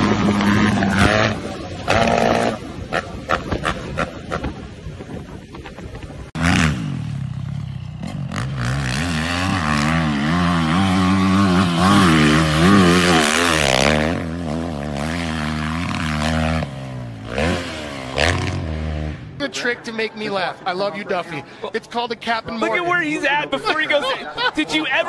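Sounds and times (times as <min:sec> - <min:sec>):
dirt bike engine revving: 0:00.0 - 0:04.7, 0:06.3 - 0:19.5.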